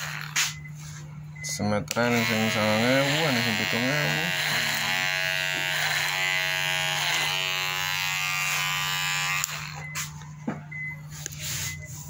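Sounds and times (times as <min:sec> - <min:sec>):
electric hair clippers buzzing: 0:00.0 - 0:00.6, 0:01.9 - 0:10.2.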